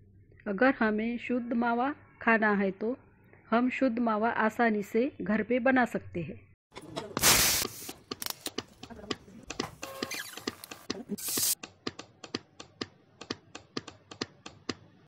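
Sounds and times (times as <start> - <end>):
short loud hiss: 7.2 - 7.9.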